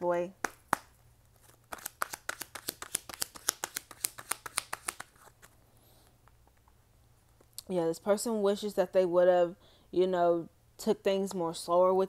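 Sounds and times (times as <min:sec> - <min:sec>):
cards being shuffled: 0:00.6 - 0:05.6.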